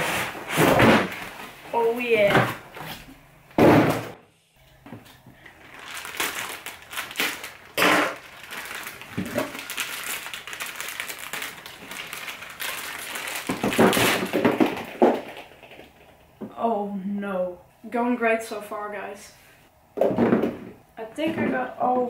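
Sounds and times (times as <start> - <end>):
plastic bag crinkling: 5.4 - 16.3.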